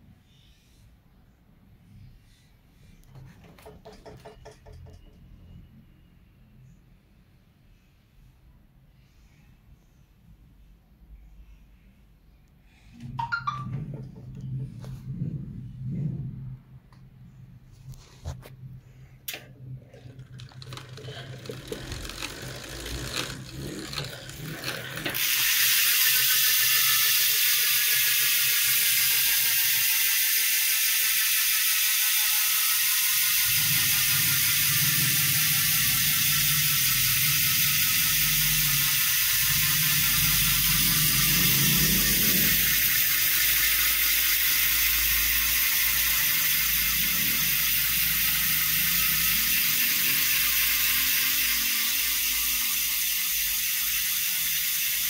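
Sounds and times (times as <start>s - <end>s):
bicycle freehub clicking: 19.3s - 55.0s.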